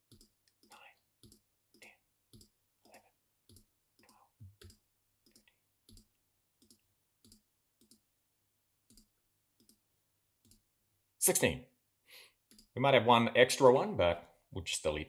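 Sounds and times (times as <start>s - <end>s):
computer mouse clicking: 0.0s - 8.0s, 8.9s - 9.8s, 12.4s - 12.7s.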